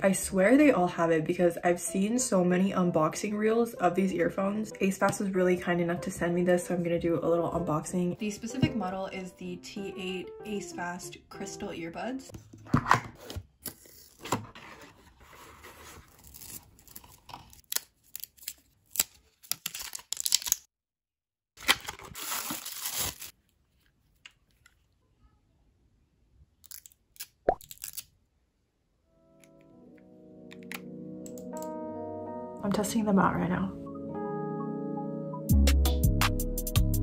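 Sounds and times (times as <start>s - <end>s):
packaging rustling and tearing: 13.2s - 20.7s, 21.6s - 23.4s.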